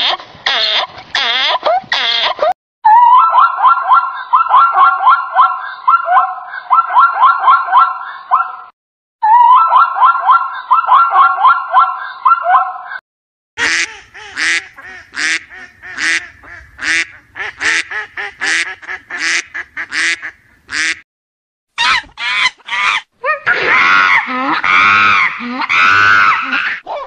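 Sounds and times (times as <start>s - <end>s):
ducks quacking: 13.6s - 21.0s.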